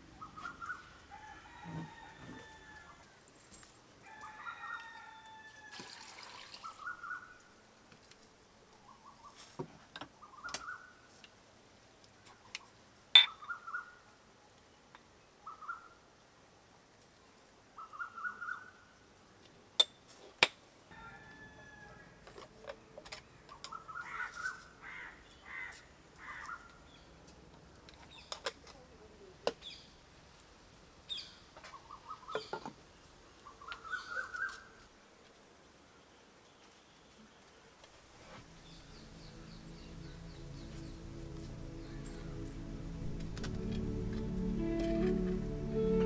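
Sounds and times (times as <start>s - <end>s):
bird calls: 0.1s - 1.0s, 6.6s - 7.5s, 10.2s - 11.0s, 12.4s - 14.0s, 23.5s - 27.1s, 31.1s - 32.7s, 33.4s - 34.8s
rooster crowing: 1.1s - 3.0s, 4.0s - 6.0s, 20.9s - 22.2s.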